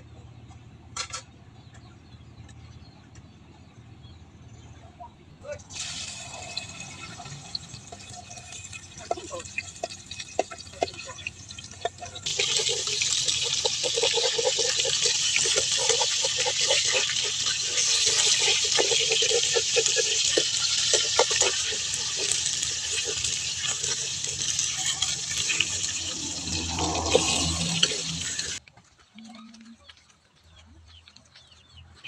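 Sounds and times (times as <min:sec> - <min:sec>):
eel sizzling in hot oil: 0:05.7 - 0:28.6.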